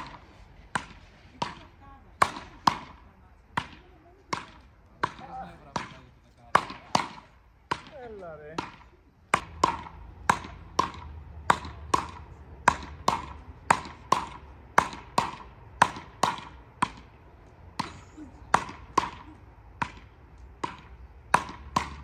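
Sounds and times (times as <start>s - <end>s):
paddle rackets striking ball: 0.0s - 22.0s.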